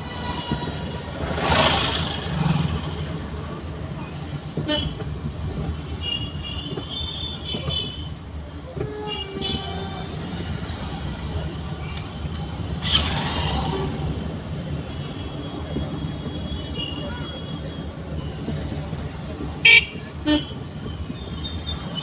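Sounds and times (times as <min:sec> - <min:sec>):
engine and road rumble: 0:00.0 - 0:22.0
car horn beeps: 0:19.6 - 0:20.6.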